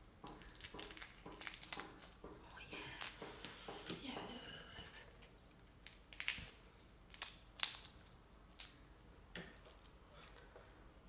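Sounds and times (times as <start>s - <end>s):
shrimp shell crackling: 0.0s - 3.2s.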